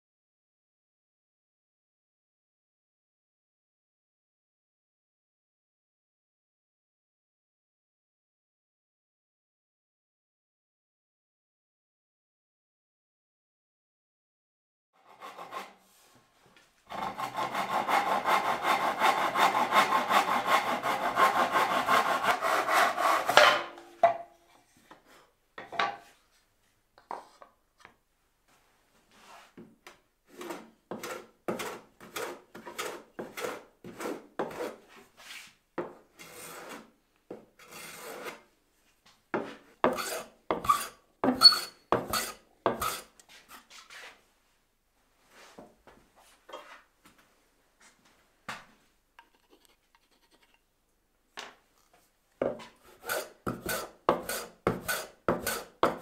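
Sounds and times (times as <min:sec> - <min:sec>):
hand plane shaving wood: 0:15.0 - 0:15.8, 0:16.9 - 0:23.4, 0:30.3 - 0:34.9, 0:36.2 - 0:36.9, 0:37.6 - 0:38.5, 0:39.9 - 0:43.6, 0:52.5 - 0:56.0
wood rasping: 0:15.0 - 0:15.8, 0:16.9 - 0:23.4, 0:30.3 - 0:34.8, 0:37.6 - 0:38.4, 0:39.9 - 0:43.1, 0:52.5 - 0:56.0.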